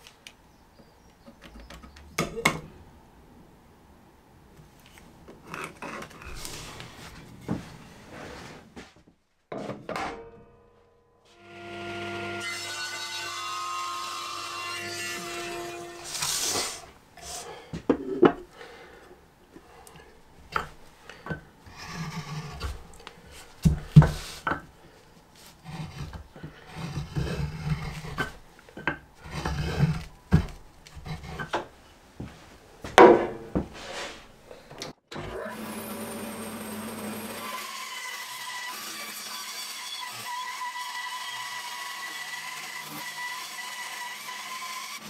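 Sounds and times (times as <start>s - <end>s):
hand tool scraping wood: 5.4s - 8.9s, 14.9s - 18.2s, 20.6s - 24.6s, 25.4s - 31.7s, 33.6s - 34.3s
sharp knocks on wood: 32.9s - 33.7s.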